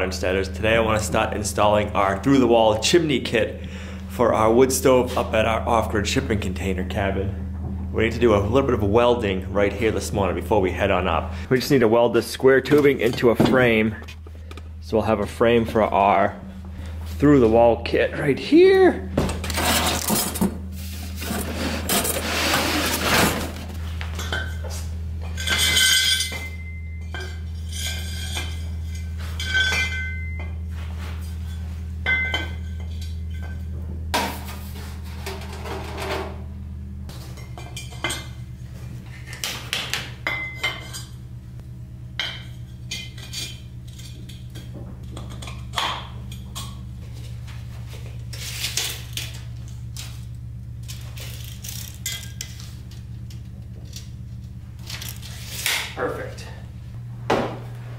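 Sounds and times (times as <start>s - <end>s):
low steady hum: 0.0s - 57.9s
metal tubing clinking on concrete: 24.2s - 30.6s.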